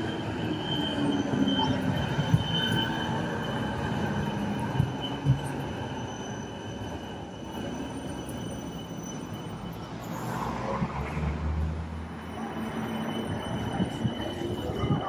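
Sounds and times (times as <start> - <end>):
tram rolling past: 0.0 - 15.0.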